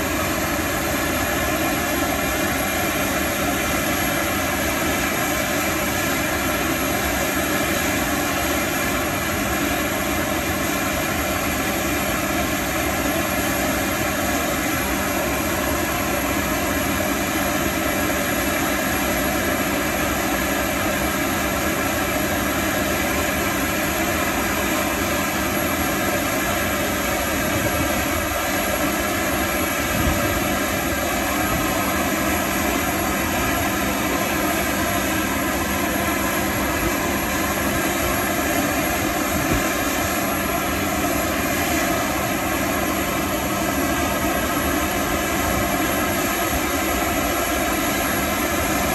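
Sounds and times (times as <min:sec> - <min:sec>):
gas turbine running steadily: 0:00.0 - 0:48.9.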